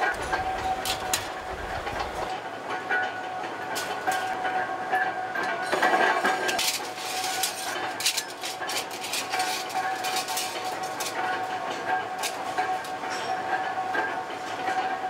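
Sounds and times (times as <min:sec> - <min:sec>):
machinery hum: 0:00.0 - 0:15.0
metal tools clinking together: 0:06.4 - 0:11.2.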